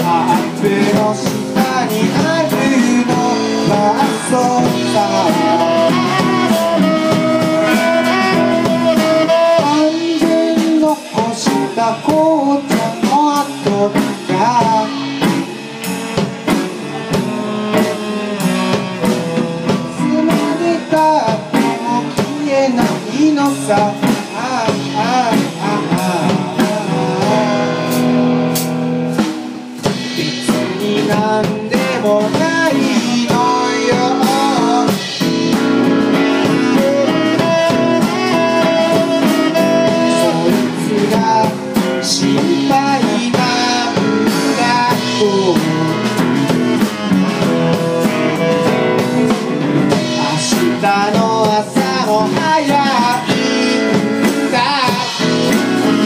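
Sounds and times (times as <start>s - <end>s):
man singing: 0.0s - 28.4s, 29.8s - 56.0s
strummed acoustic guitar: 0.0s - 28.8s
drum kit: 0.0s - 56.0s.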